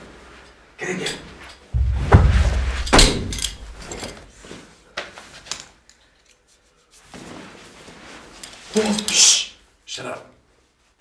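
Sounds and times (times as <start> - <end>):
door banging shut: 1.8 - 4.0.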